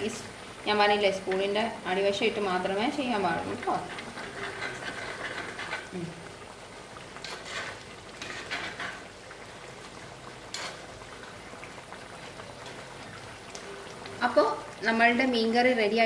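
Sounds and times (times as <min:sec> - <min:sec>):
curry bubbling at a simmer: 0:00.0 - 0:16.0
metal spoon scraping a pot: 0:03.5 - 0:06.0, 0:07.2 - 0:09.1, 0:10.5 - 0:10.9.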